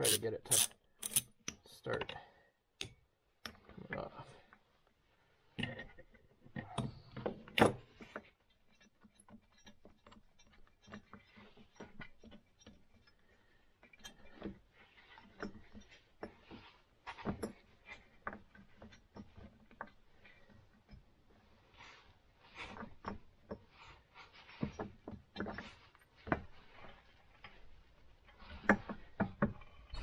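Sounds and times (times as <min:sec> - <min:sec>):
metal clinks and knocks: 0:05.6 - 0:21.7, 0:22.5 - 0:30.0.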